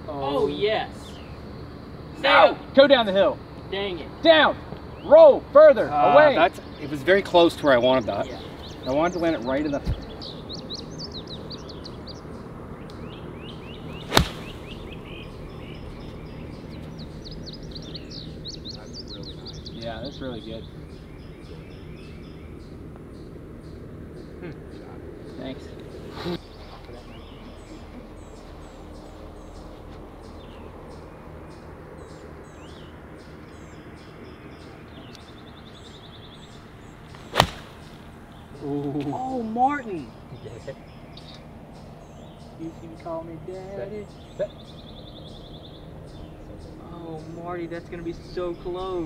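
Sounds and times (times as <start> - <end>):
low outdoor background hiss: 0.0 - 49.0
small birds chirping: 0.0 - 49.0
golf ball struck crack: 14.0 - 15.0, 37.1 - 38.1
golf club swish: 14.1 - 14.8, 37.2 - 38.0.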